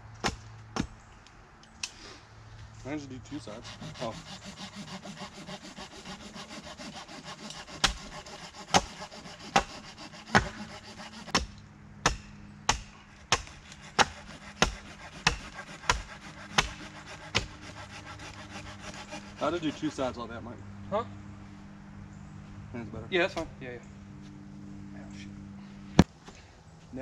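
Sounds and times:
hatchet chopping wood: 0.2 - 1.0, 3.6 - 19.5
steady scraping: 2.6 - 11.6, 13.3 - 20.6.

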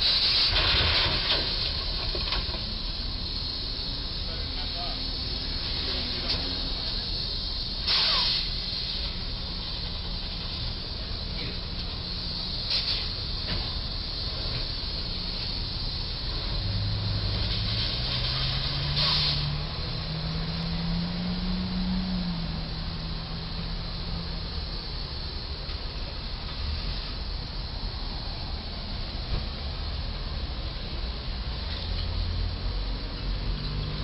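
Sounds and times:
street traffic: 0.0 - 34.0
short hisses: 7.8 - 9.2, 17.3 - 19.6
vehicle engine pulling away: 15.7 - 25.5, 31.1 - 34.0.

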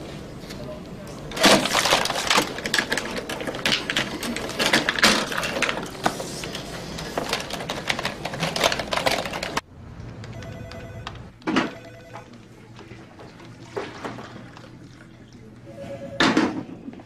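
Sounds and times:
keyboard typing clatter: 7.1 - 9.6.

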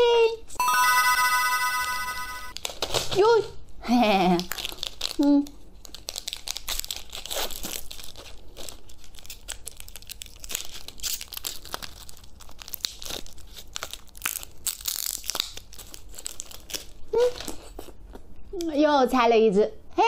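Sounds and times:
plastic wrapper crinkling and tearing: 2.5 - 3.2, 4.3 - 18.0.

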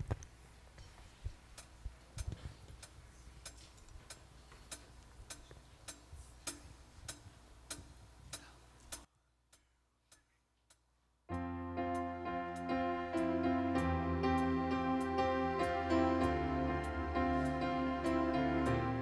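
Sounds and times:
metronome ticking: 1.5 - 10.2.

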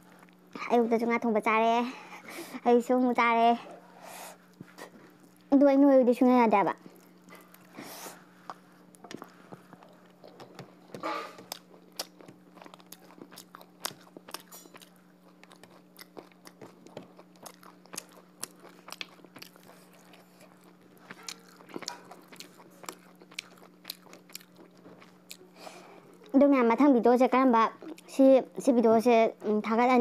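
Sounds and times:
faint steady hum: 0.0 - 30.0
person chewing food: 6.8 - 26.4, 27.8 - 28.1.

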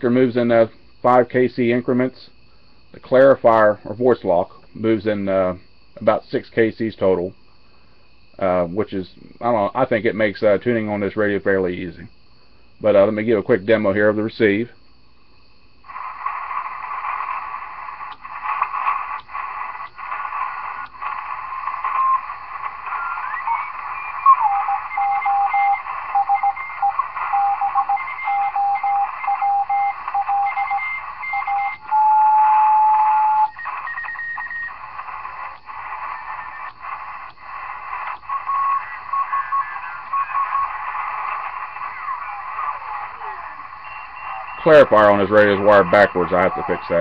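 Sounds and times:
radio band noise hiss: 0.0 - 14.8, 15.8 - 47.0
static crackles: 15.7 - 47.0
morse code tones: 21.8 - 47.0
steady whistling tone: 38.2 - 47.0.

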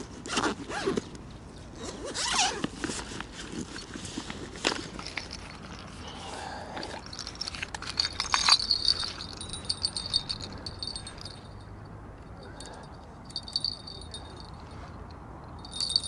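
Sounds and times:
fishing tackle clicking and rattling: 5.0 - 6.0, 7.0 - 11.6, 12.6 - 14.6, 15.5 - 16.0
bite alarm bell tinkling: 7.1 - 12.0, 12.6 - 14.8, 15.5 - 16.0.

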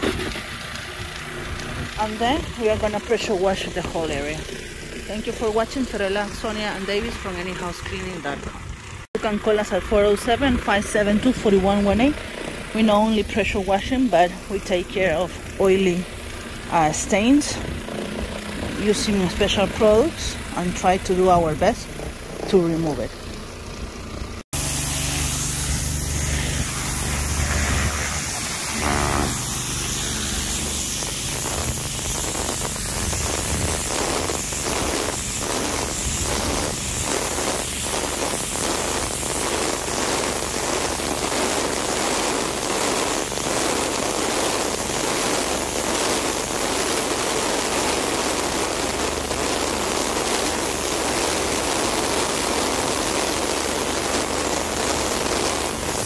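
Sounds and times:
pressure washer spraying concrete: 0.0 - 56.0
low steady hum: 0.9 - 41.4.

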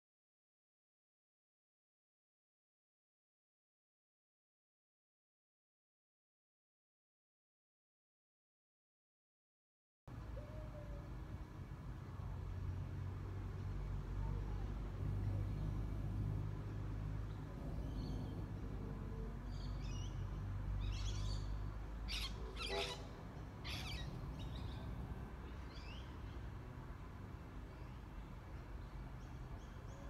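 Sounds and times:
low outdoor rumble: 10.1 - 30.0
birds chirping: 17.3 - 26.4.

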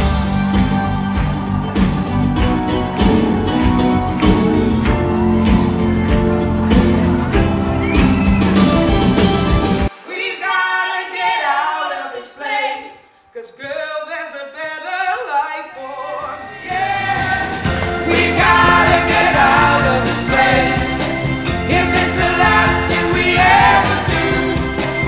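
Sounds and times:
loud band music: 0.0 - 10.8, 15.8 - 25.0
women singing in harmony: 16.2 - 25.0.

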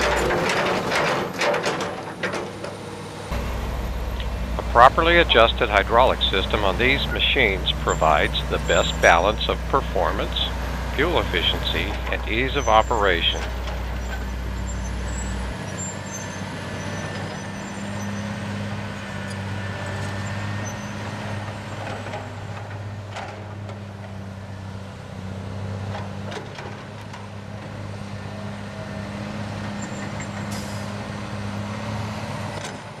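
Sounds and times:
machine knocks and clanks: 0.0 - 2.9
diesel machinery engine drone: 0.0 - 33.0.

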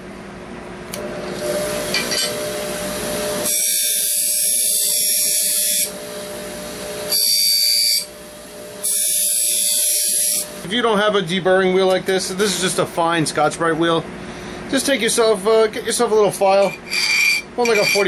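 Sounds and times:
buffer motor whine: 0.9 - 10.8.

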